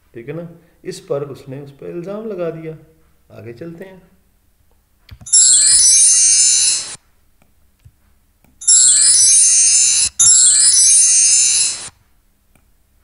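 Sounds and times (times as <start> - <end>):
chime run sliding downward: 5.3 - 7.0, 8.6 - 11.9.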